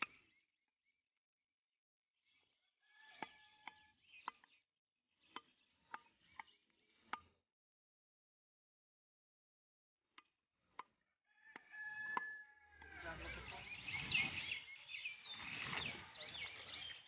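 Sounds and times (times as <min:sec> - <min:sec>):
bird calls: 0:02.3 - 0:04.6, 0:11.4 - 0:17.0
voices: 0:12.8 - 0:17.0.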